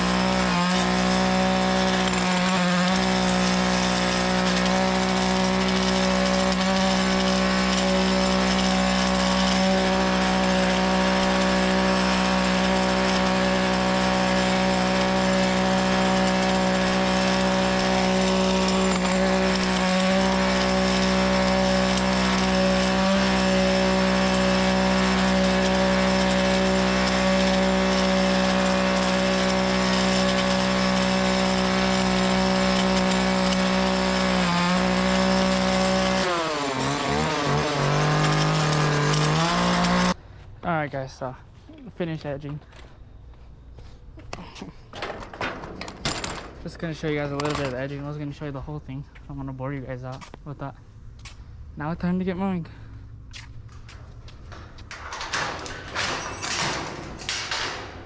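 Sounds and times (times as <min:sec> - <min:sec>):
lawn edger engine running: 0:00.0 - 0:40.2.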